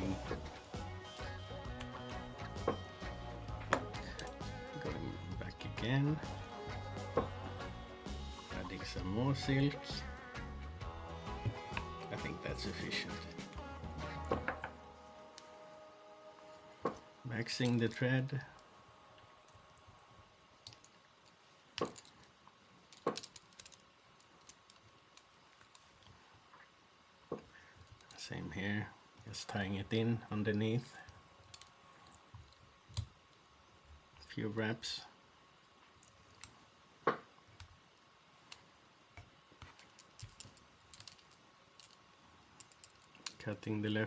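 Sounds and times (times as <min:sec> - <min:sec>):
faint clicks and taps of tools: 0:20.6 - 0:26.7, 0:27.3 - 0:28.2, 0:30.5 - 0:33.4, 0:35.8 - 0:43.5.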